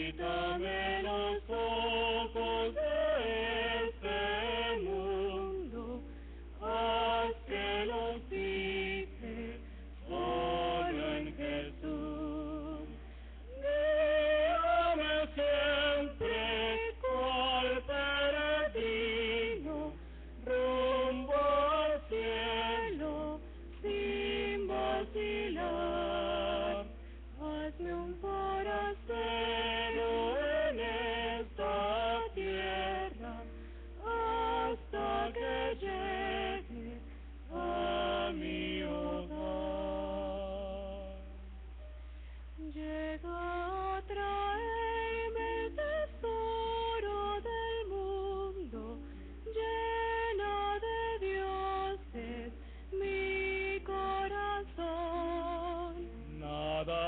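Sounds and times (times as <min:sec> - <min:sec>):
woman singing a hymn: 0:00.0 - 0:41.4, 0:42.6 - 0:57.0
steady low hum: 0:00.0 - 0:57.0
man singing: 0:56.3 - 0:57.0.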